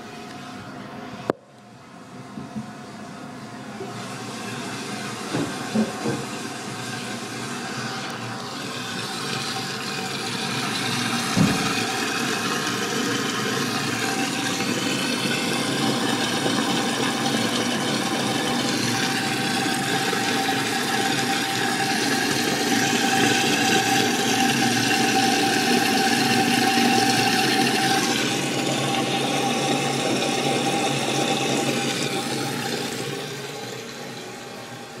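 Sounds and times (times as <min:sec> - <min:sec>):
toilet tank refilling with water: 0:03.4 - 0:35.0
knock: 0:11.4 - 0:11.7.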